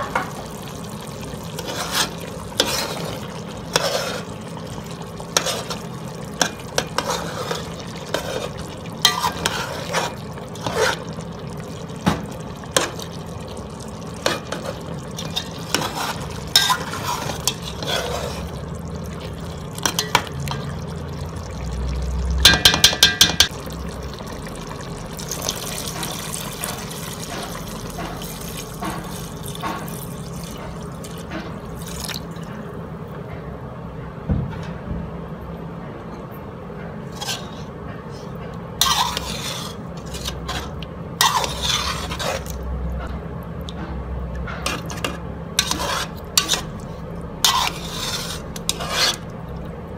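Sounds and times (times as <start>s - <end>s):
water pouring into a pot: 0.2s - 32.5s
metal spoon scraping a pot: 1.5s - 4.4s, 5.3s - 11.2s, 14.2s - 20.7s, 37.1s - 37.8s, 38.8s - 42.6s, 44.5s - 46.8s, 47.4s - 49.3s.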